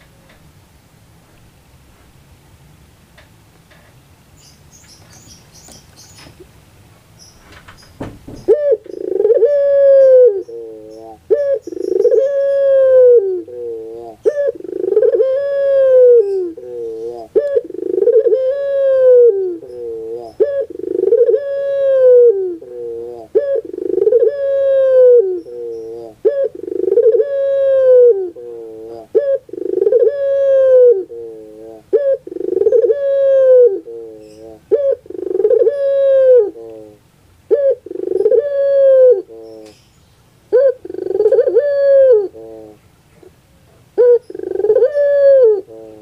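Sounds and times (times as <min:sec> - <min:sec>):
rustle or clatter: 0:00.0 - 0:02.3, 0:03.0 - 0:09.0
dove cooing: 0:08.4 - 0:39.8, 0:40.5 - 0:43.4, 0:44.0 - 0:46.0.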